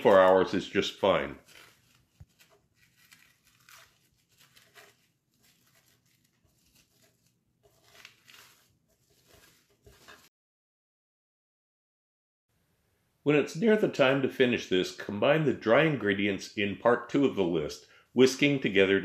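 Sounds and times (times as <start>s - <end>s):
cling film crinkling: 0.0s - 10.3s.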